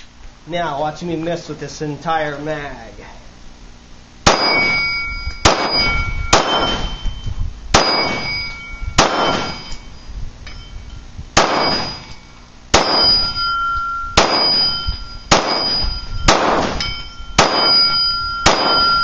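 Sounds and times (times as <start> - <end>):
pistol shots: 4.2 - 4.8, 5.4 - 6.9, 7.7 - 8.4, 9.0 - 9.7, 11.4 - 12.1, 12.7 - 13.2, 14.2 - 19.0
steel plate target ringing: 4.2 - 19.0.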